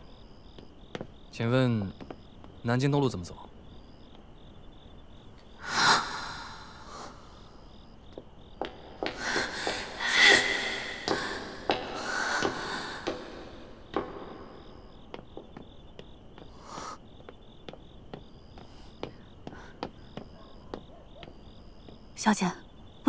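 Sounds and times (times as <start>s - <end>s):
crickets chirping: 0.0s - 23.0s
footsteps on pavement: 0.5s - 1.2s, 8.1s - 22.0s
breathy rushes of noise: 5.6s - 7.6s, 9.1s - 13.7s.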